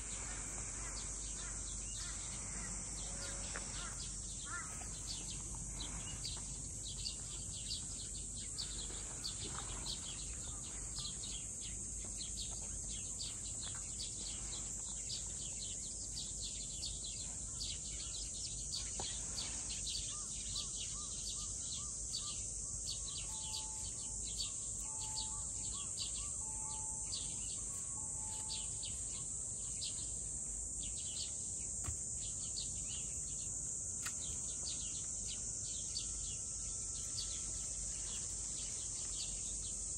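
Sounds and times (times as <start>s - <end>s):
high-pitched insect drone: 0.0s - 7.6s, 20.1s - 31.3s
insect chirps: 0.0s - 39.9s.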